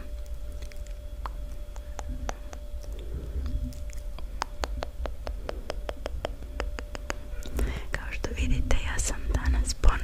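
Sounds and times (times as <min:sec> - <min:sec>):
wet tongue and lip clicks: 0:00.0 - 0:07.7.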